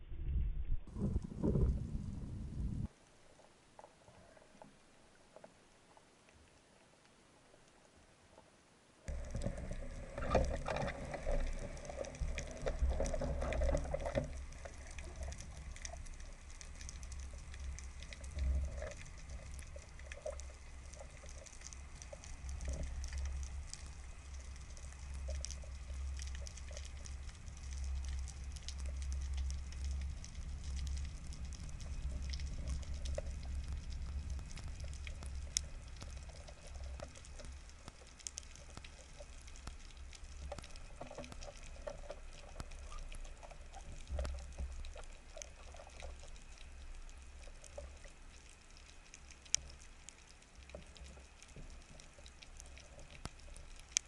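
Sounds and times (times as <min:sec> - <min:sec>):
swishing of movement underwater: 0:00.0 - 0:08.5, 0:09.1 - 0:54.0
faint clicks and crackle: 0:00.0 - 0:54.0
underwater rush of water: 0:09.1 - 0:54.0.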